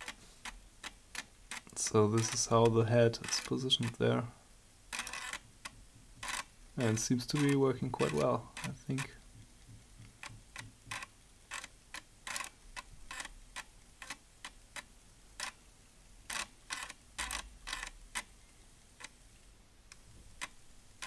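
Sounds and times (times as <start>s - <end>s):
floppy drive stepper clicking: 0.0s - 4.0s, 5.0s - 9.1s.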